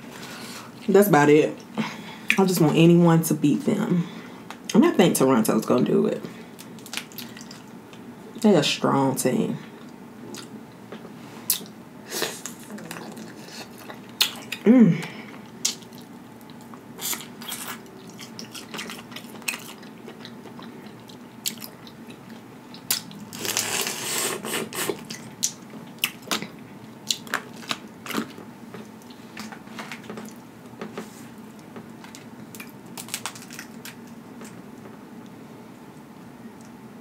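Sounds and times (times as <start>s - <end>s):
chewing: 12.4s - 14.6s, 15.4s - 23.6s
crawfish shells cracking: 32.0s - 34.6s.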